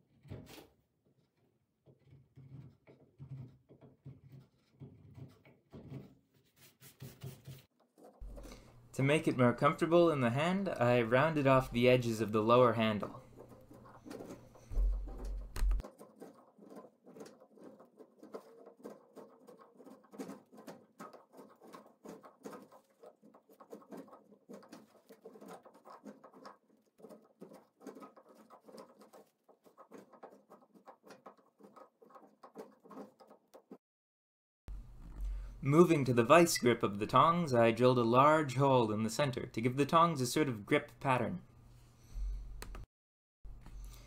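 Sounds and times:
chisel scraping wood: 0.0s - 8.9s, 12.9s - 33.8s.

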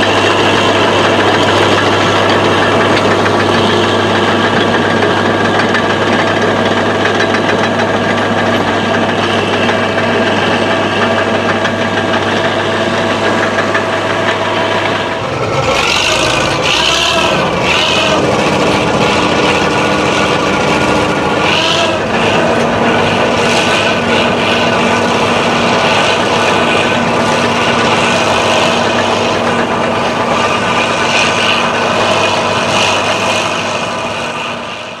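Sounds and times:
clatter: 0.0s - 35.0s
diesel engine under load: 0.0s - 35.0s
high squealing: 14.0s - 34.6s.

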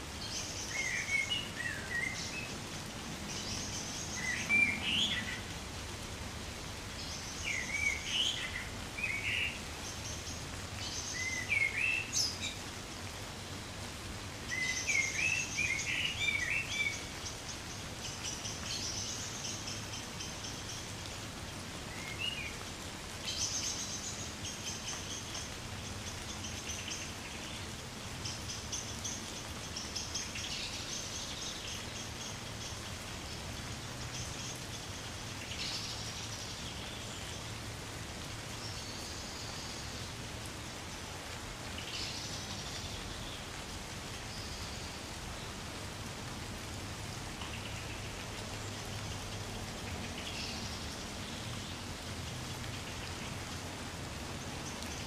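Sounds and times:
gentle rain on trees: 0.0s - 55.0s
small birds chirping: 0.2s - 55.0s.

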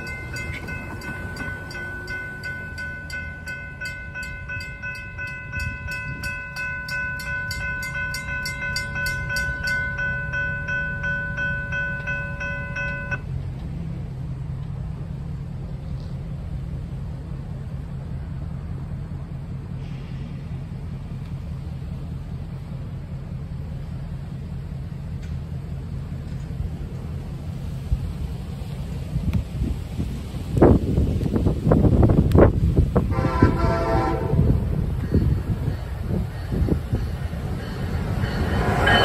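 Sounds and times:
railroad crossing bell ringing: 0.0s - 13.3s, 33.1s - 39.0s
low steady rumble: 0.0s - 39.0s.

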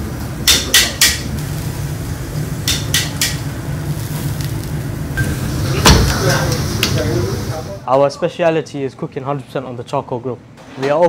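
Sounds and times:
steady low hum: 0.0s - 7.9s.

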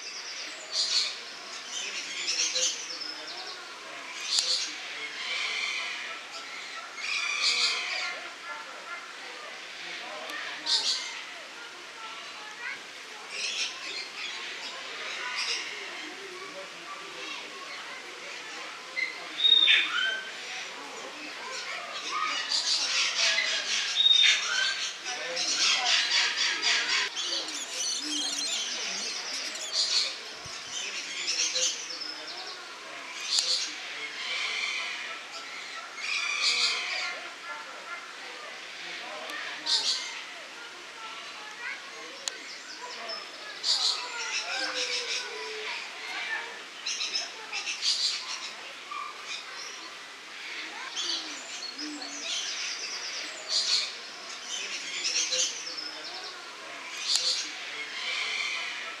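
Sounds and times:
lorikeets chattering: 17.3s - 20.7s, 21.3s - 37.2s, 38.5s - 59.0s
lorikeets screeching: 21.6s - 32.1s.

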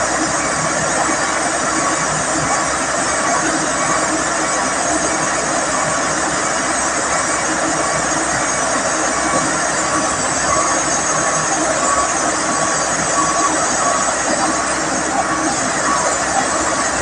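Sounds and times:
heavy diesel machinery running: 0.0s - 17.0s.

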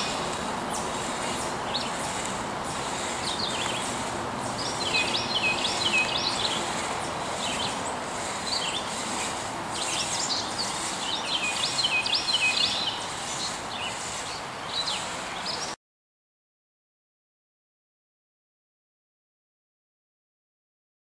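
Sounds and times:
crosscut saw rasping through wood: 0.0s - 14.2s
songbirds chirping: 0.0s - 15.8s.

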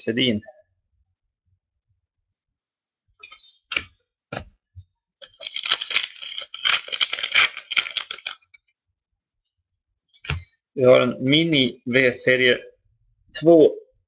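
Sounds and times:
card pack wrapper crinkling: 5.2s - 8.6s.

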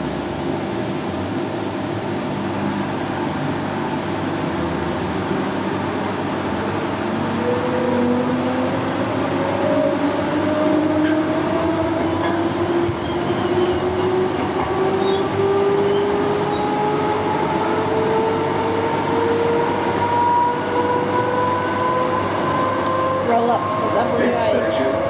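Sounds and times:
wheels rumbling on rails: 0.0s - 25.0s
train motors whining: 7.2s - 25.0s.

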